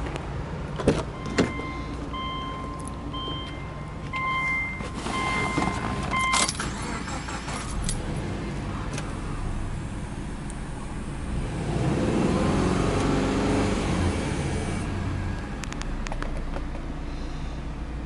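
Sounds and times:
car warning chime beeps: 0:01.2 - 0:06.7.

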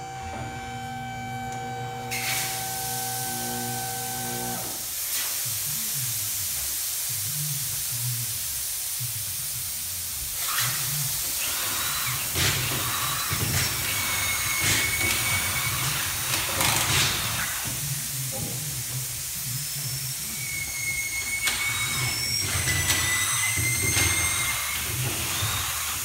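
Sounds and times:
compressed air hissing: 0:04.2 - 0:22.4
pneumatic tools rattling: 0:10.4 - 0:18.1, 0:19.0 - 0:26.0.

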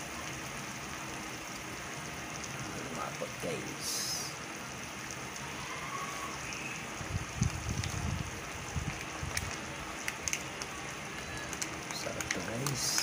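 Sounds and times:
food simmering hiss: 0:00.0 - 0:13.0
sharp crackles: 0:06.4 - 0:13.0.

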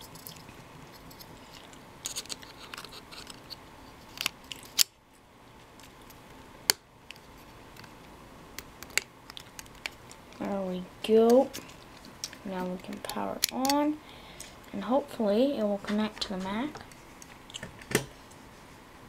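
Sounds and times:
mouse handling clicks and scrapes: 0:00.0 - 0:04.9, 0:08.8 - 0:10.5.

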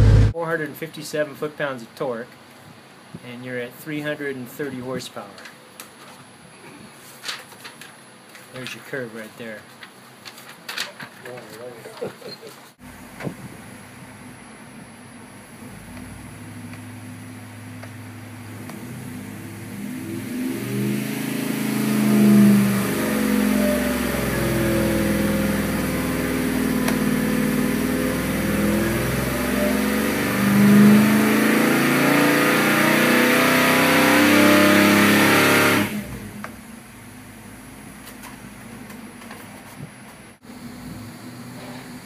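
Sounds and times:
engine idling: 0:00.0 - 0:00.4
engine revving at full throttle: 0:00.0 - 0:00.4, 0:15.6 - 0:36.5.

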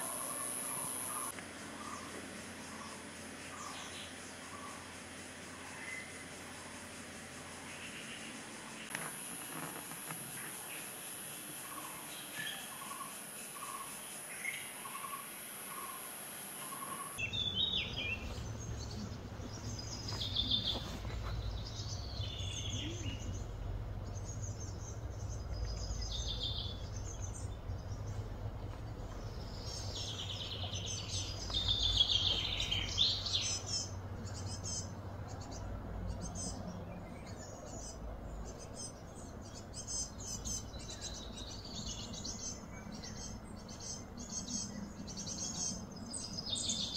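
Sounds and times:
steady high buzz: 0:00.0 - 0:36.7
birds chirping: 0:00.0 - 0:46.9
steady low rumble: 0:17.2 - 0:46.2.

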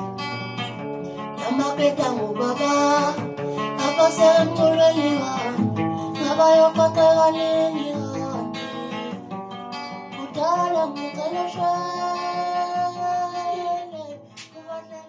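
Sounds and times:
acoustic guitar: 0:00.0 - 0:15.0
man singing: 0:01.1 - 0:09.2, 0:10.1 - 0:15.0.

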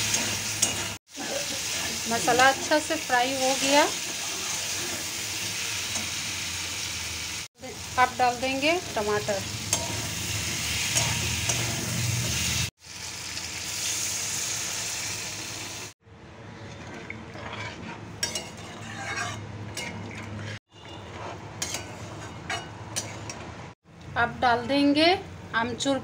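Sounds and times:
metal spatula scraping steel pan: 0:00.0 - 0:01.0, 0:01.6 - 0:06.2, 0:08.6 - 0:12.6, 0:16.6 - 0:23.5
vegetables sizzling in hot oil: 0:00.0 - 0:16.0.

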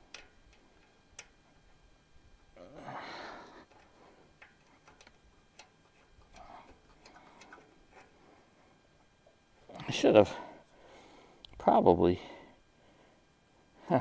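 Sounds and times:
small metallic ticks and clicks: 0:00.0 - 0:02.6, 0:03.6 - 0:08.1.

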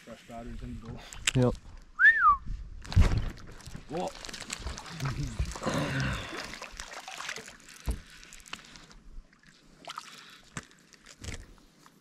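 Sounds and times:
water lapping against boat hull: 0:03.3 - 0:11.4.

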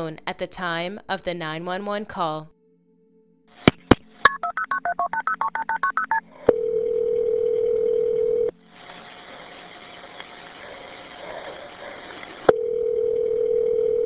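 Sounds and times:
touch-tone keypad beeps: 0:04.3 - 0:06.2
steady phone line tone: 0:04.3 - 0:08.5, 0:12.5 - 0:14.0
faint phone-line hiss: 0:07.6 - 0:11.3.

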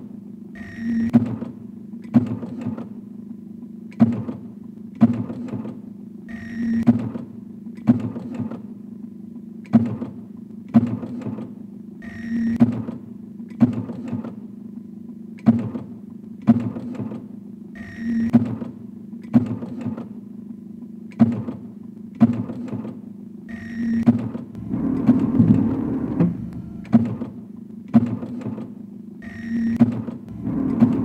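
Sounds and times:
printing press low hum: 0:00.0 - 0:31.0
sharp mechanical knocks: 0:01.1 - 0:03.0, 0:03.9 - 0:05.8, 0:06.8 - 0:08.6, 0:09.6 - 0:11.5, 0:12.6 - 0:14.4, 0:15.4 - 0:17.3, 0:18.3 - 0:20.1, 0:21.1 - 0:23.0, 0:24.0 - 0:28.8, 0:29.8 - 0:31.0.

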